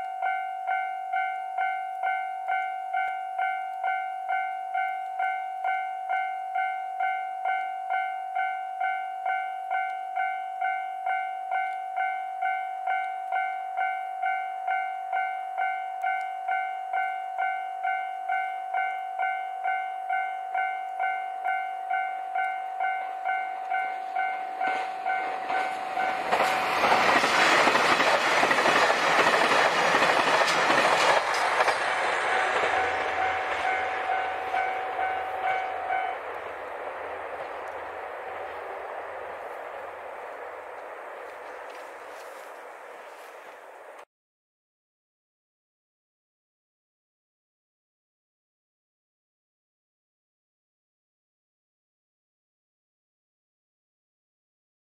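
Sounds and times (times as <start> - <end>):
level-crossing alarm dinging: 0.0 - 27.8, 31.6 - 40.2
train passing with loud rush: 0.0 - 44.0.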